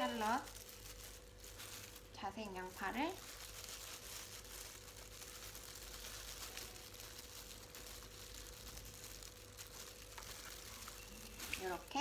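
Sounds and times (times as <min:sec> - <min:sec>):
plastic gloves crinkling: 0:00.0 - 0:12.0.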